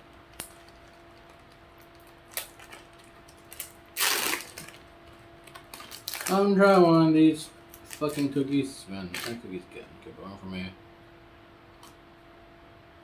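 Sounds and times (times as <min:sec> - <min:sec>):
plastic wrapper crinkling: 0:00.3 - 0:06.9, 0:07.7 - 0:08.5, 0:09.1 - 0:09.4
plastic wrapper ripping: 0:00.4 - 0:04.8, 0:05.4 - 0:06.6, 0:07.7 - 0:08.4, 0:09.1 - 0:09.4.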